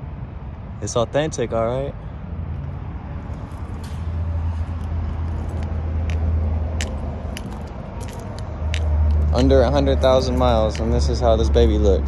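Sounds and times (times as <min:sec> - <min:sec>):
footsteps on gravel: 0:03.3 - 0:11.0.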